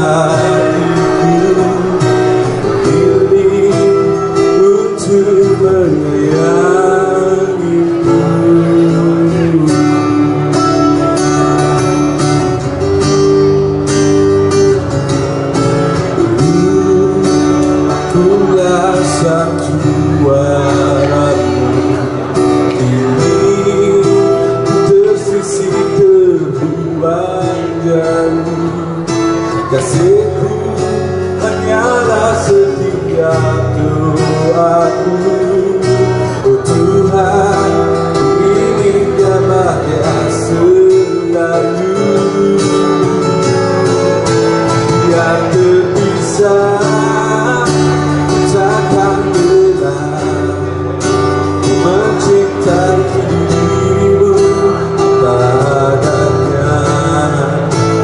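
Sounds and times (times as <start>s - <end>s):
bass guitar: 0.0s - 58.0s
man singing: 0.0s - 58.0s
strummed acoustic guitars: 0.0s - 58.0s.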